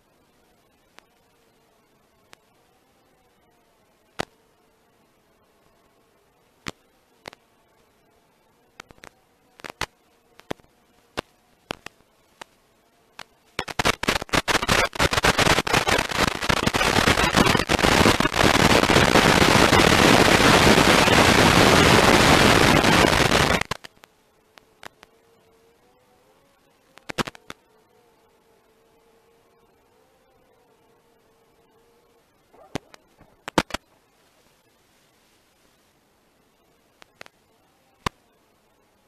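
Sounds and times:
loud crackling static hiss: 0.0s - 39.0s
radio static pops: 4.2s - 4.4s, 6.6s - 7.4s, 8.7s - 12.6s, 13.2s - 25.1s, 26.9s - 27.7s, 32.5s - 35.8s, 36.9s - 38.2s.

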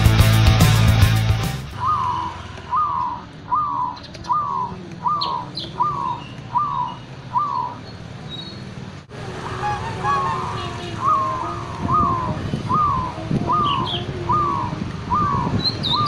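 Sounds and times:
dove cooing: 1.8s - 7.9s, 9.4s - 16.0s.

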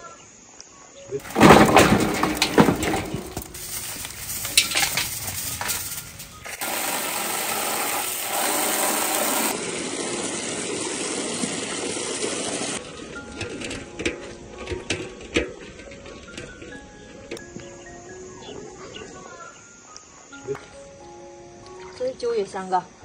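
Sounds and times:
light clinks and knocks: 1.2s - 6.5s
running tap water: 6.4s - 12.8s.

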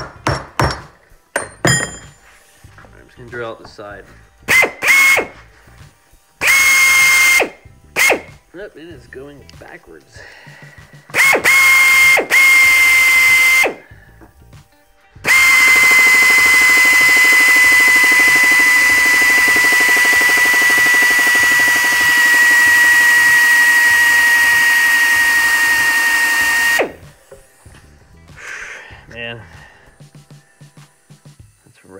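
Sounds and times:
power drill whining: 4.5s - 5.6s, 6.4s - 8.4s, 11.1s - 14.2s, 15.2s - 27.7s.

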